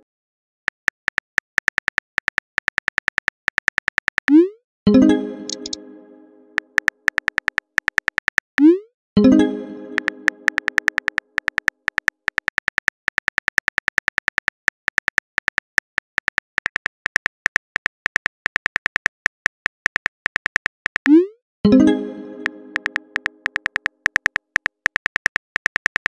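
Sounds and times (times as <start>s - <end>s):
keyboard tap clicks: 5.5s - 5.8s, 6.6s - 8.5s, 10.0s - 21.1s, 22.7s - 26.0s.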